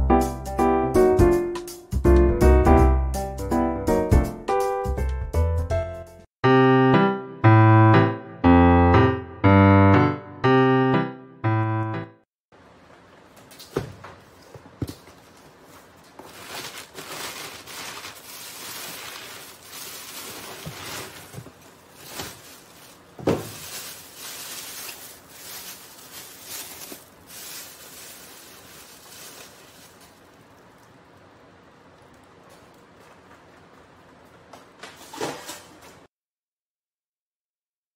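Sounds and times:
cardboard and plastic bags rustling: 13.5 - 31.0
cardboard box thumping on counter: 23.2 - 23.6
bag set down with thump: 23.2 - 23.7.

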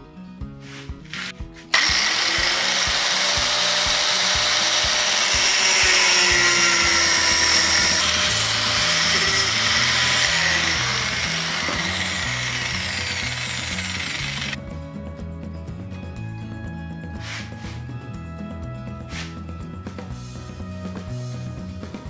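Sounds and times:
background music with beat: 0.0 - 8.0, 14.6 - 22.0
angle grinder cutting metal: 1.1 - 14.6.

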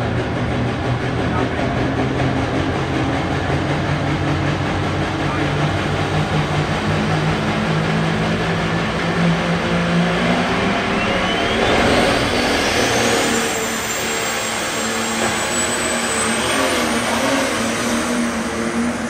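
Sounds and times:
tractor diesel engine running hard: 0.0 - 19.0
turbocharger whistle: 10.1 - 19.0.

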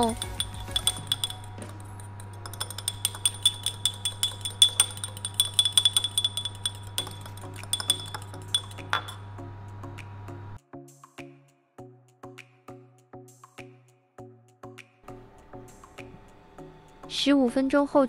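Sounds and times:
soft background music: 0.0 - 3.9, 7.0 - 18.0
fork clinking against porcelain cup: 0.0 - 9.2
steady low hum: 0.0 - 10.6.

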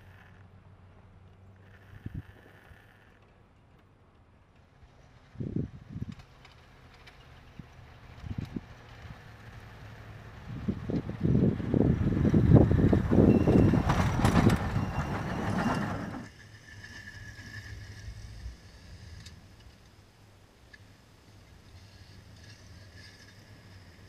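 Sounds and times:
truck engine running low: 4.8 - 16.4
truck engine pulling under load: 4.9 - 18.2
snow rushing off plow blade: 7.4 - 19.6.

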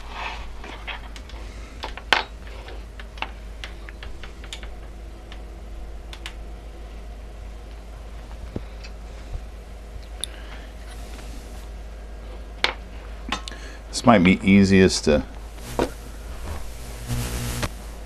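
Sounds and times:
low steady hum: 0.0 - 18.0
parts clicking and tapping: 0.9 - 5.4.

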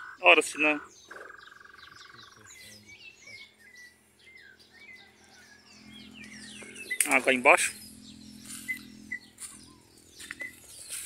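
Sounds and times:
birds chirping: 0.0 - 11.0
steady buzzing trill: 1.3 - 11.0.

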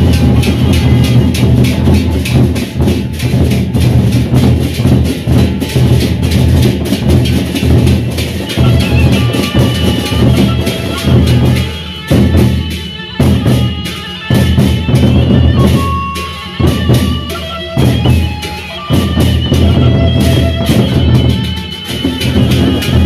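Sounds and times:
barrel drums beaten with sticks: 0.0 - 23.0
flute melody: 8.4 - 23.0.

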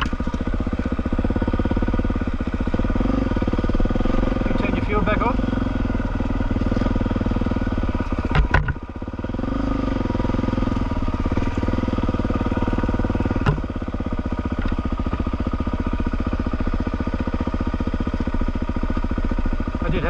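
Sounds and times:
motorcycle engine running: 0.0 - 20.0
sharp knocks: 8.2 - 8.8, 13.4 - 13.7.

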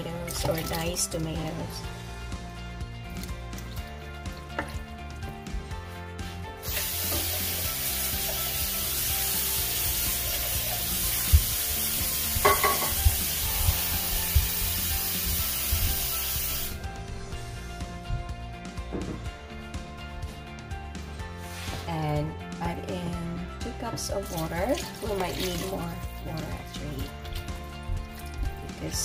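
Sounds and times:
loud even hiss: 6.6 - 16.8.

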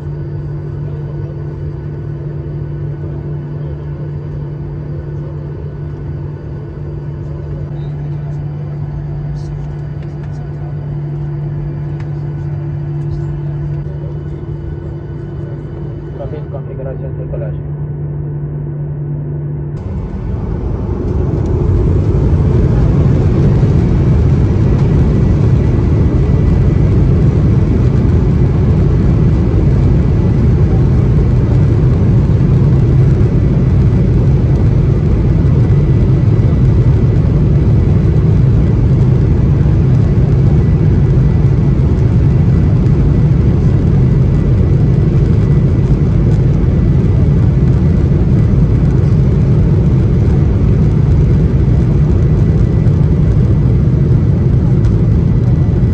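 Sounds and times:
jet engine rumble: 0.0 - 55.9
faint thin whine: 3.0 - 17.4.

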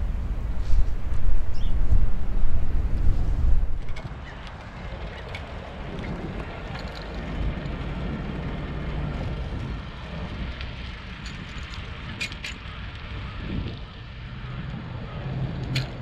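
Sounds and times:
bicycle riding rumble: 0.0 - 16.0
wind buffeting microphone: 0.0 - 16.0.

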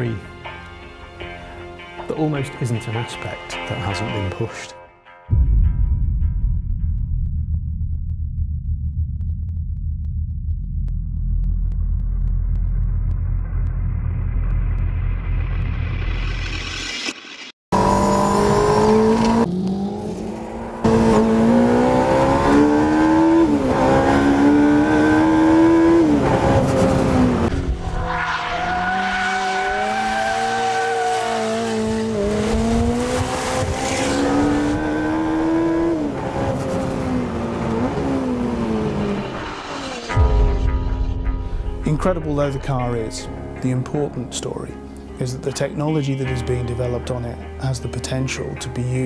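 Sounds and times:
car engine revving through gears: 17.7 - 40.2.

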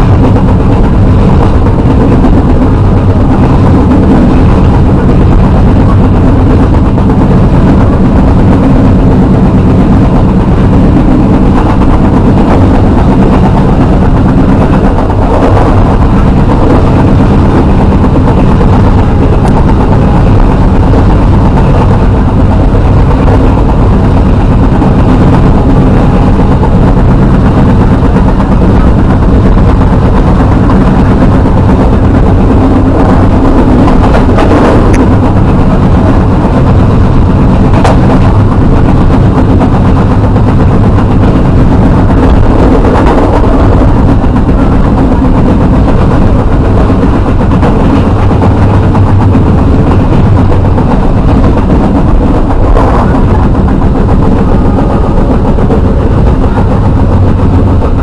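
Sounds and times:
low hum: 0.0 - 58.0
train wheels rumbling on track: 0.0 - 58.0.

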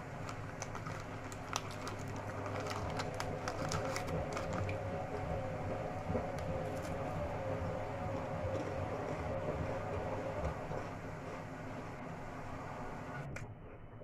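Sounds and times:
crackers crackling and snapping: 0.0 - 5.3, 6.2 - 7.2
steady low hum: 0.0 - 14.0
crackers being bitten: 0.2 - 4.8.

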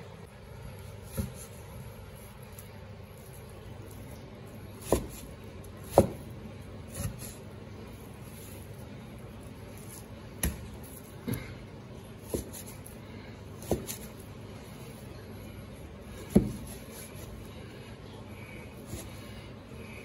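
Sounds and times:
cleaver chopping meat on plastic board: 4.8 - 6.3, 10.4 - 11.4, 12.2 - 12.7, 13.6 - 14.1, 16.2 - 16.8.

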